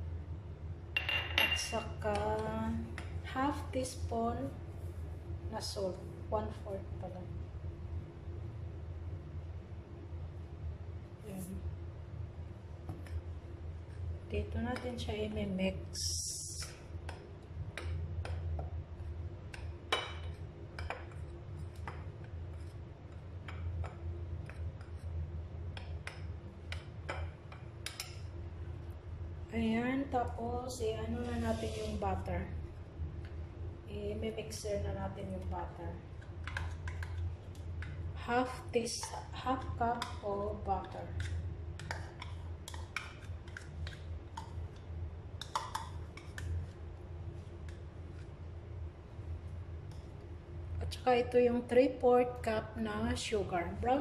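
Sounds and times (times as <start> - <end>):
steady low hum: 0.0 - 54.0
metal spoon stirring in ceramic bowl: 36.1 - 46.8
spoon tapping and scraping cup: 40.8 - 44.8, 45.4 - 46.5.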